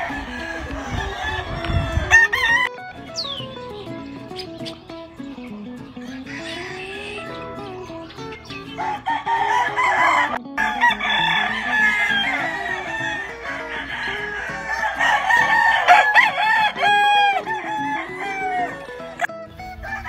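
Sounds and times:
roosters crowing: 0.0s - 2.7s, 6.0s - 7.4s, 8.7s - 20.0s
quiet guitar music: 0.0s - 20.0s.

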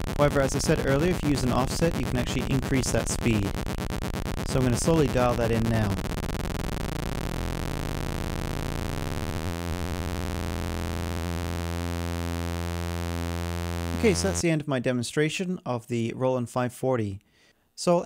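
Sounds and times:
synth flutter turning to buzz: 0.0s - 14.4s.

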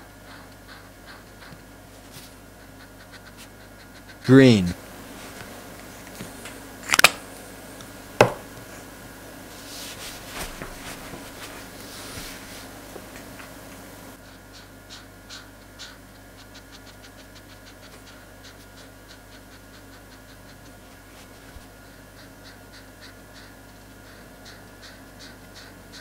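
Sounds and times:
marker rubbing on paper: 0.2s - 4.4s, 14.2s - 26.0s.

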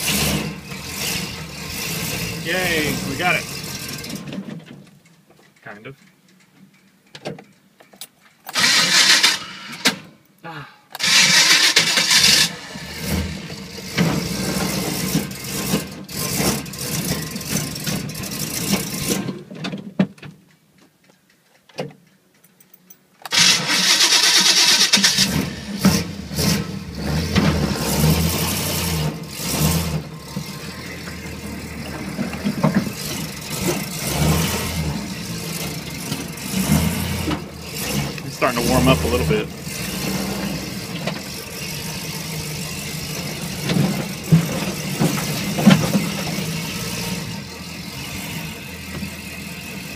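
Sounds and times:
vee-eight engine running rough: 24.9s - 49.9s.

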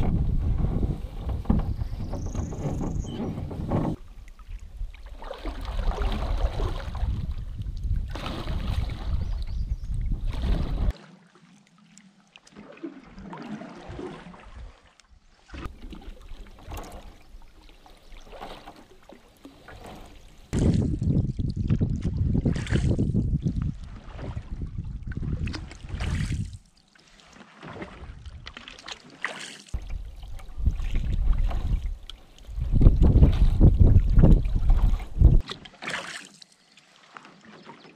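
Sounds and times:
wind rumble on microphone: 0.0s - 10.9s, 20.0s - 26.6s, 28.0s - 28.6s, 29.8s - 35.4s
paddle strokes in water: 0.0s - 37.9s
water lapping along hull: 0.0s - 37.9s.

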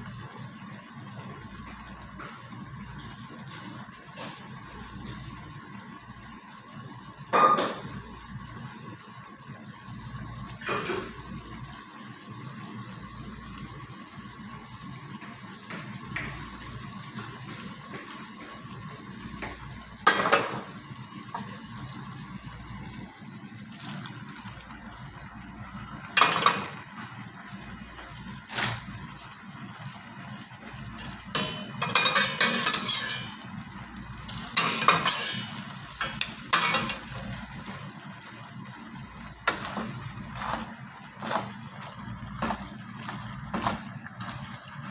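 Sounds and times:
sauce simmering hiss: 0.0s - 44.9s
clattering against pan: 26.2s - 26.7s, 31.0s - 33.4s, 34.3s - 37.9s.

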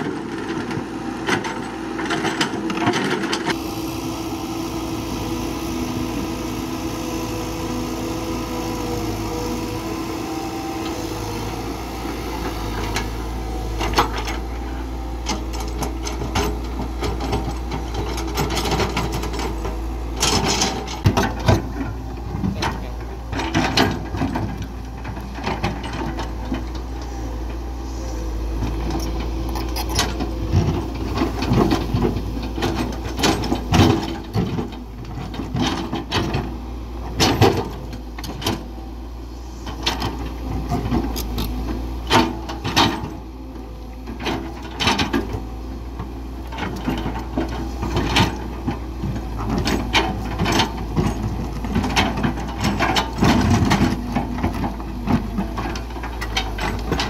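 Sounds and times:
diesel engine running: 0.0s - 57.0s
knocks clanks and scrapes: 12.4s - 36.5s, 46.4s - 57.0s.

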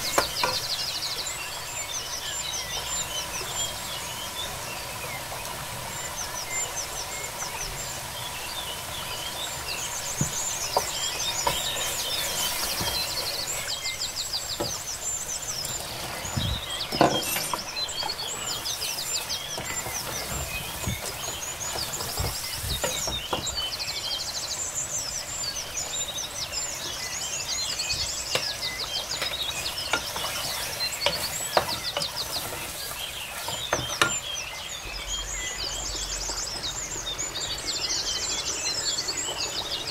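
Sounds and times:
birds chirping: 0.0s - 39.9s
wooden spoon stirring in pot: 15.7s - 23.7s, 29.1s - 34.3s.

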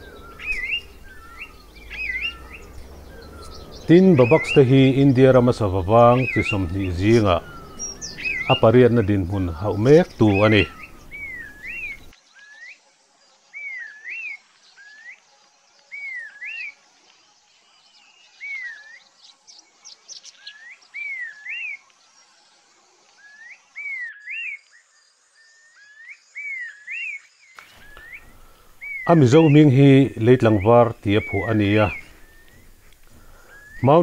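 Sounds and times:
bird whistled calls: 0.0s - 12.8s, 23.2s - 24.6s, 25.6s - 34.0s.

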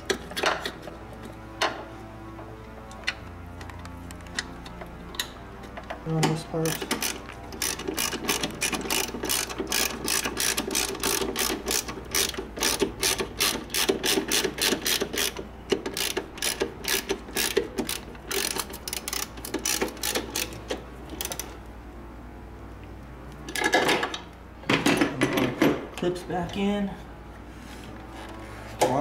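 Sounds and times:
socket ratchet clicking: 6.6s - 21.5s.

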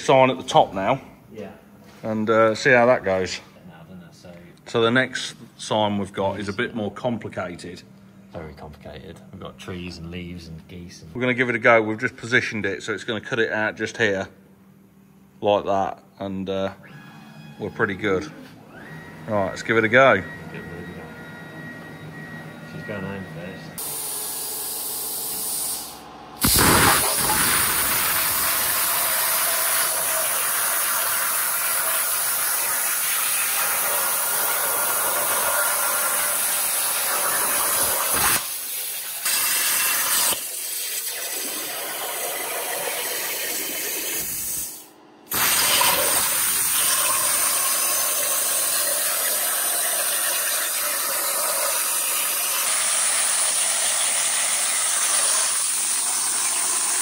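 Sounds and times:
plasma cutter hissing: 23.8s - 57.0s.

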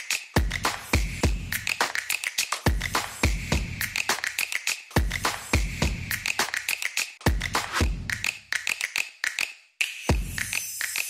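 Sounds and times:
clicking percussion: 3.8s - 11.0s
deep kick drums: 7.3s - 8.1s.

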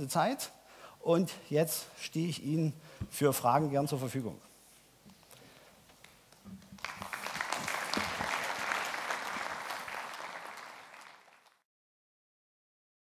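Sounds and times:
audience applauding: 6.6s - 11.6s.

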